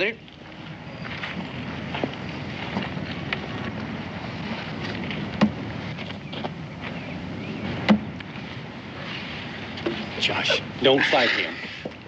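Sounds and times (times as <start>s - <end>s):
steady background hiss: 0.0s - 12.0s
sharp knocks: 5.4s - 5.6s, 7.8s - 8.1s.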